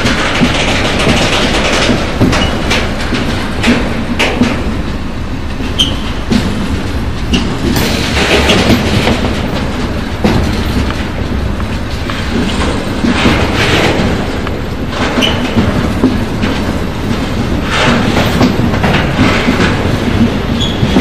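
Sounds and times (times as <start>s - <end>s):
freight train wheels clattering: 0.0s - 21.0s
high wheel squeals: 5.7s - 6.1s.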